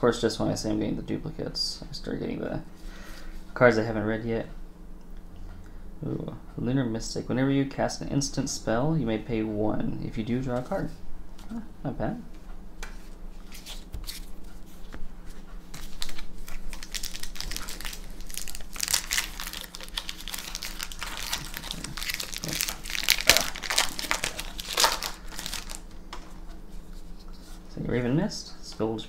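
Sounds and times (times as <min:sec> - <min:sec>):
foil wrapper crinkling and tearing: 0:15.8 - 0:25.8.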